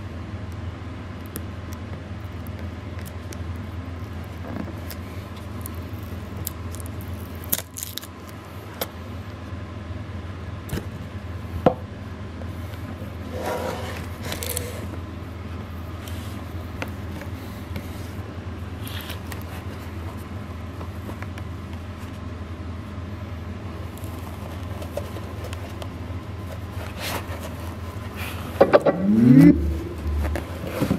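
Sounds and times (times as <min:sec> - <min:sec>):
low hum: 0:28.4 - 0:30.9
scraping rush: 0:28.6 - 0:30.9.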